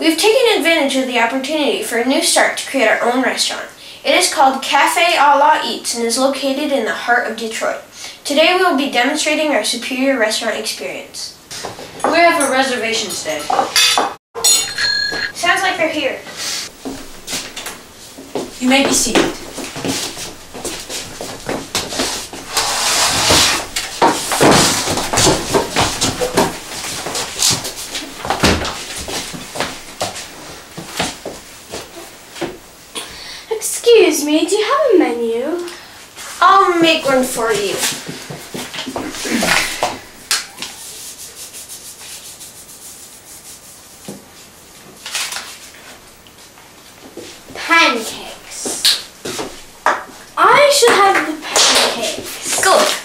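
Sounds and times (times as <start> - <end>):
wooden chairs scraping and knocking: 11.5 - 14.2, 16.7 - 32.6, 36.2 - 40.8
footsteps: 16.6 - 32.7, 36.2 - 41.1, 44.0 - 53.0.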